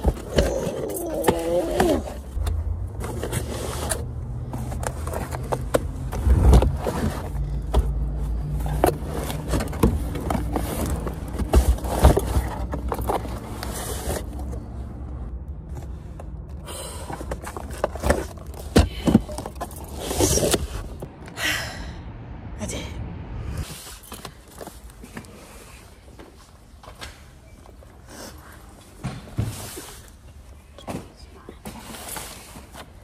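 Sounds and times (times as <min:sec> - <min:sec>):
heavy boxes knocking and scraping: 0:04.6 - 0:14.5, 0:17.0 - 0:21.2.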